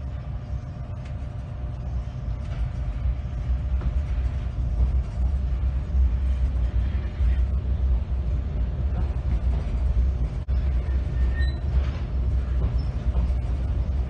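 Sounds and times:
train rumbling from inside carriage: 0.0 - 14.0
high-pitched train squeal: 10.7 - 13.1.

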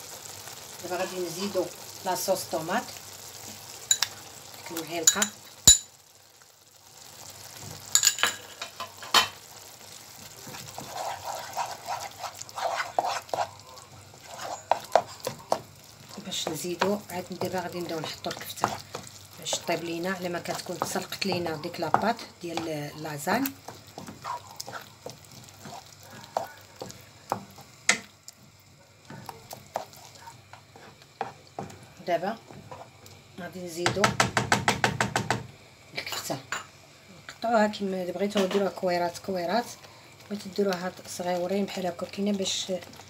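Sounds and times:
spatula stirring sauce in pan: 6.0 - 33.3
spoon knocking against pan: 20.7 - 22.8, 33.8 - 35.5.

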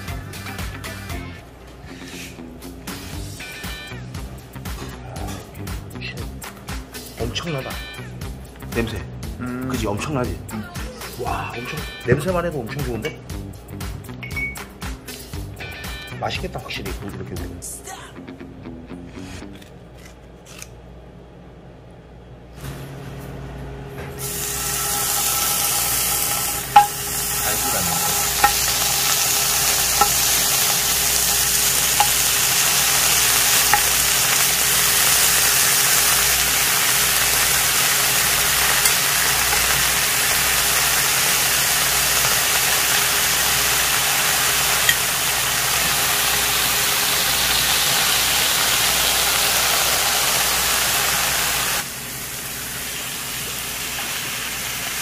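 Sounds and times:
meat sizzling on a griddle: 24.2 - 55.0
metal tongs clicking on pan: 27.6 - 34.4, 38.7 - 39.8.

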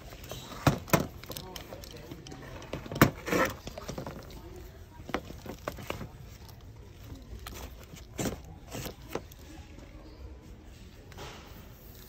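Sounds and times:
plastic tubs knocking and rustling: 0.0 - 9.4.

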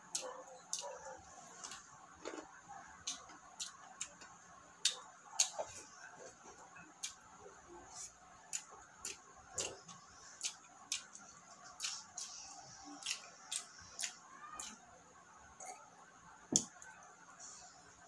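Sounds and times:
person chewing with wet smacking: 0.1 - 1.0, 1.6 - 7.2, 7.9 - 14.8.

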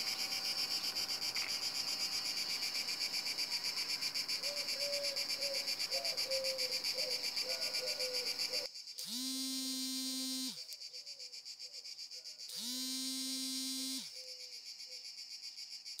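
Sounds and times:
cicada buzzing: 0.0 - 16.0.

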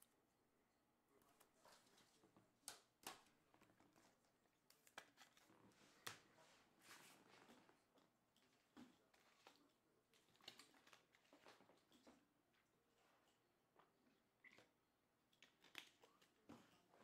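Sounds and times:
cards rustling: 4.6 - 6.3.

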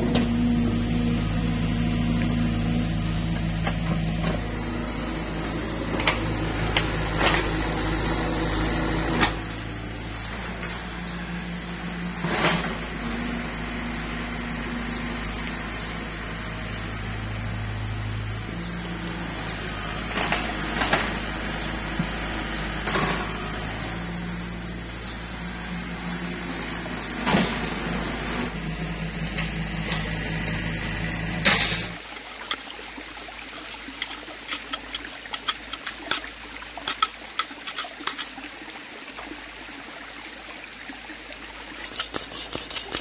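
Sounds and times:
steel bucket clanking on rocky soil: 31.5 - 38.5, 41.8 - 43.0.

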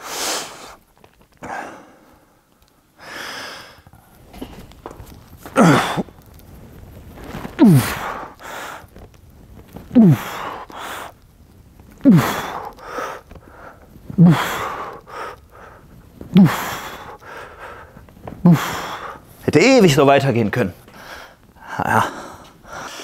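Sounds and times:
quick breaths drawn in: 0.0 - 0.8, 7.2 - 9.1, 20.9 - 23.0
man grunting exhalations: 5.5 - 6.1, 7.6 - 8.4, 9.9 - 10.6, 12.0 - 12.7, 14.2 - 14.8, 16.3 - 17.2, 18.4 - 19.2, 21.6 - 22.4.

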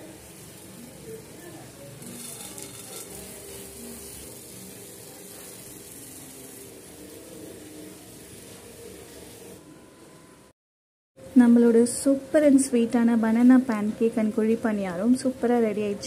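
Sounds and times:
pancake batter sizzling: 0.0 - 9.6.

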